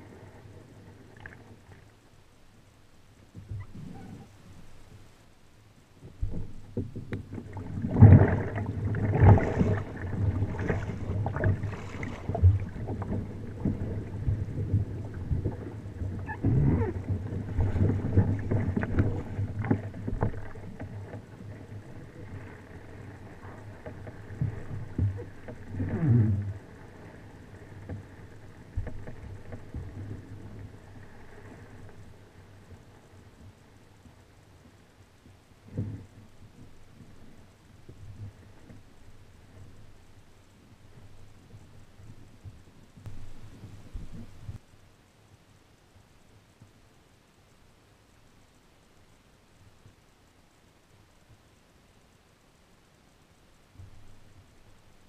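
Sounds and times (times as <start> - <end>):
kayak paddle splashing: 6.2 - 33.9.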